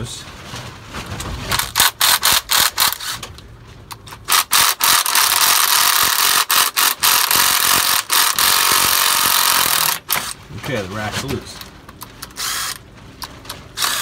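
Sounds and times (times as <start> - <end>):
cordless impact wrench running: 1.6 - 3.2, 4.2 - 10.4, 12.2 - 12.8, 13.8 - 14.0.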